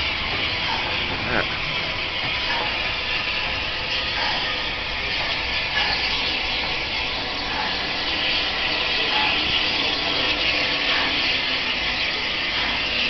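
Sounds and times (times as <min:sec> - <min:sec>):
steam hissing: 0:00.0 - 0:13.0
steam locomotive passing: 0:00.0 - 0:13.0.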